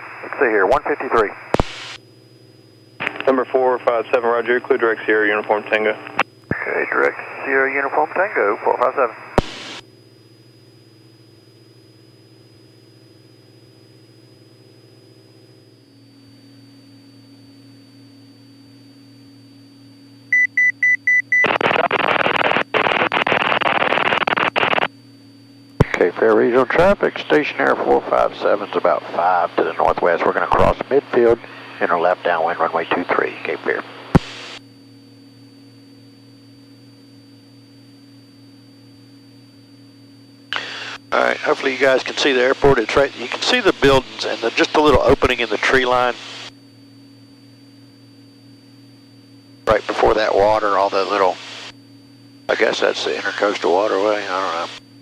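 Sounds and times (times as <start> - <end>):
radio static hiss: 0.0 - 2.0, 3.0 - 9.8, 21.3 - 34.7, 40.4 - 46.6, 49.6 - 51.8, 52.4 - 55.0
radio click: 0.3 - 2.0, 3.0 - 3.4, 6.0 - 7.3, 8.8 - 9.8, 21.4 - 24.9, 33.7 - 34.6, 40.5 - 46.5
aircraft engine and propeller drone: 2.1 - 9.4, 25.8 - 34.0, 40.2 - 46.7, 49.7 - 51.7, 52.5 - 54.8.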